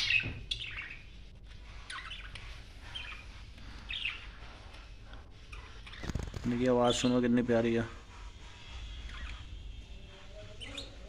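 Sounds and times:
budgerigars chirping: 0:00.0 - 0:04.5, 0:08.7 - 0:11.0.

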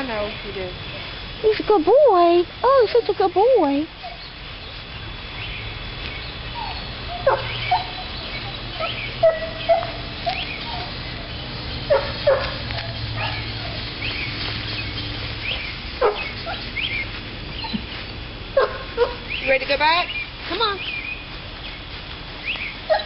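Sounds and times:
puppies yipping and whimpering: 0:04.0 - 0:04.4, 0:06.5 - 0:18.0, 0:22.5 - 0:23.0.

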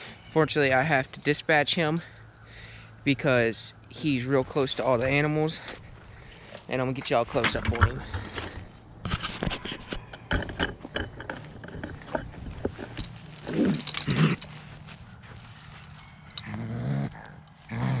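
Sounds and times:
footsteps crunching dry leaves: 0:11.5 - 0:18.0
raccoon growling: 0:13.4 - 0:14.5, 0:16.4 - 0:18.0.

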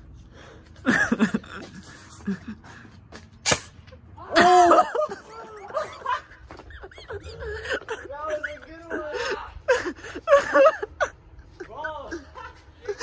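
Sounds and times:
sharp crack: 0:03.4 - 0:04.0.

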